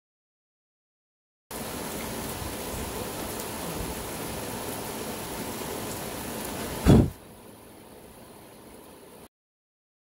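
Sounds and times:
rain falling: 1.5 - 9.3
loud low thump: 6.8 - 7.2.

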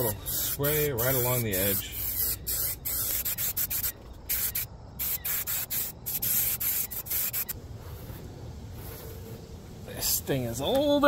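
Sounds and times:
aerosol spray hissing: 0.0 - 7.6.

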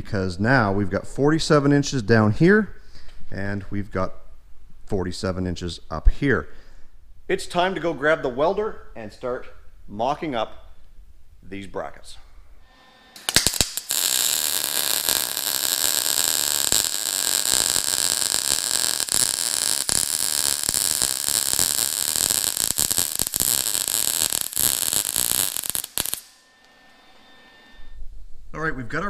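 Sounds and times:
welder arc crackling: 12.6 - 27.1
arc striking clicks: 13.2 - 26.8.

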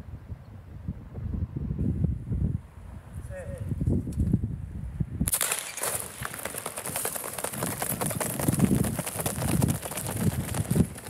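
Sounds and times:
running footfalls on track: 5.8 - 11.0.

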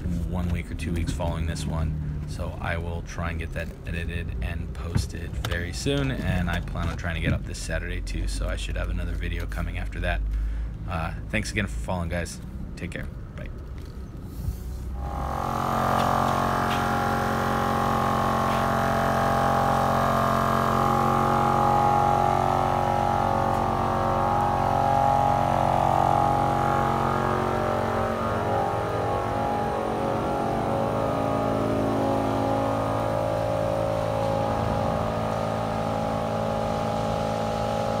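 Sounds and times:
motor droning: 14.8 - 38.0.

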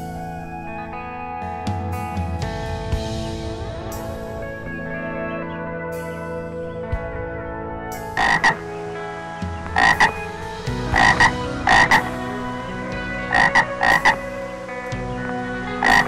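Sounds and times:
frog croaking: 8.2 - 8.7, 9.6 - 14.6, 15.7 - 16.0.

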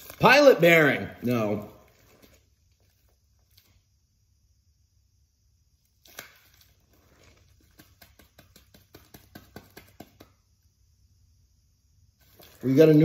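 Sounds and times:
wrapping crinkling: 0.0 - 4.0, 5.8 - 10.0, 12.2 - 13.0.

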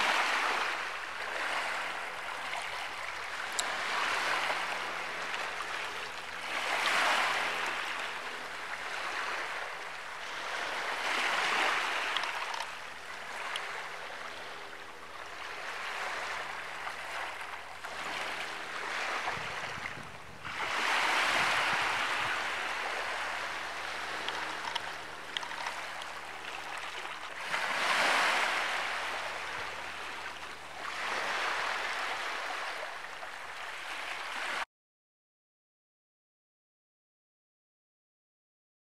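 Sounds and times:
small waves washing in: 0.0 - 34.6.

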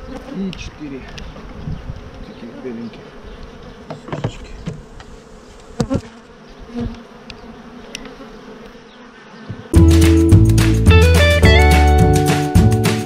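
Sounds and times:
honey bees buzzing: 0.0 - 13.0
wooden knocks: 3.9 - 4.8
loud guitar music: 9.8 - 13.0.

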